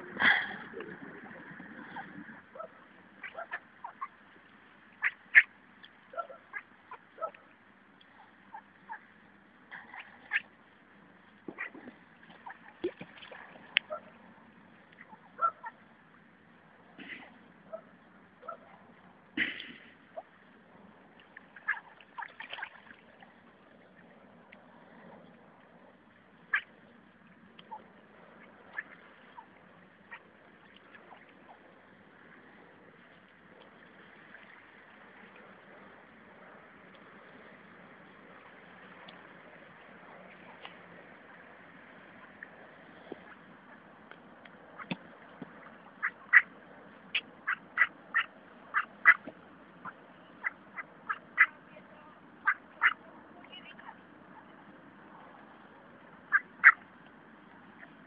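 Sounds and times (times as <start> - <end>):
ducks quacking: 0.0 - 4.2, 5.0 - 5.5, 6.1 - 7.4, 8.2 - 9.1, 9.7 - 10.5, 11.5 - 12.9, 15.0 - 15.8, 21.6 - 22.8, 26.4 - 26.7, 27.6 - 30.3, 45.6 - 46.5, 47.1 - 51.6, 52.4 - 53.0, 56.3 - 56.8
faint steady hiss: 0.0 - 58.0.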